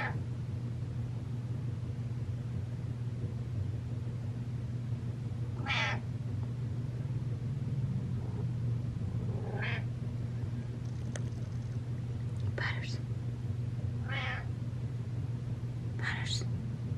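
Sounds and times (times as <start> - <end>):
steady low hum: 0.0 - 16.9
cat meowing: 5.6 - 6.0, 9.5 - 9.9, 14.0 - 14.5.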